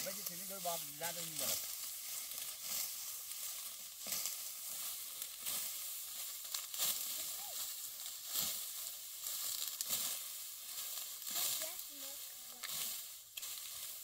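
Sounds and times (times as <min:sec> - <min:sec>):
dry straw rustling: 0:00.0 - 0:14.0
sickle swish and snap: 0:04.0 - 0:11.6.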